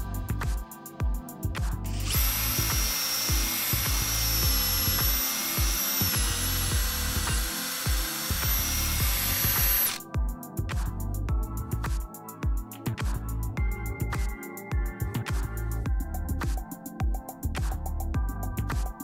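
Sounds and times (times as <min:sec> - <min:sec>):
background music with a beat: 0:00.0 - 0:19.0
cordless drill whining: 0:01.9 - 0:10.0
drill bit cutting wood: 0:01.9 - 0:10.0.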